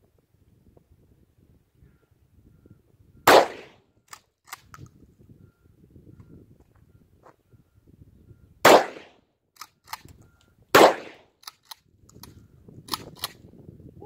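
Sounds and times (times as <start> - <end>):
shotgun blasts: 3.3 - 3.8, 8.6 - 9.2, 10.7 - 11.3
shotgun pump clacking: 11.4 - 13.4.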